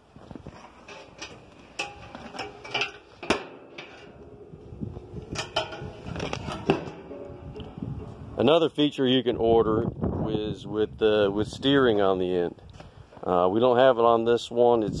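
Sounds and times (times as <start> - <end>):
steel parts clanking: 0.6 - 8.7.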